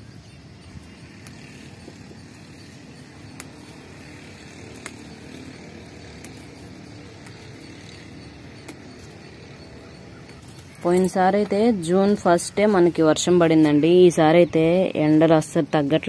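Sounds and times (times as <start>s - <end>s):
stems snapping: 1.2s - 1.6s, 3.3s - 9.5s.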